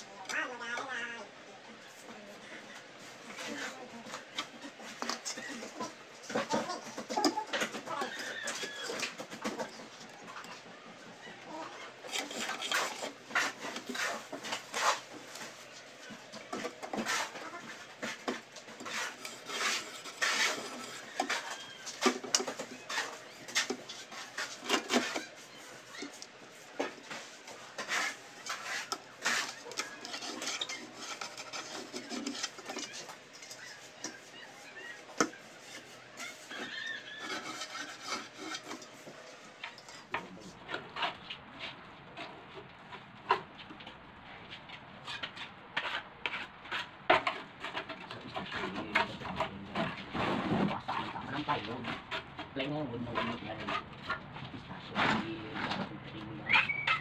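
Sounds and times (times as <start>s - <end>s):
straightedge and pencil scraping tile: 12.0s - 15.6s, 16.5s - 26.2s, 26.8s - 34.3s, 34.9s - 40.2s.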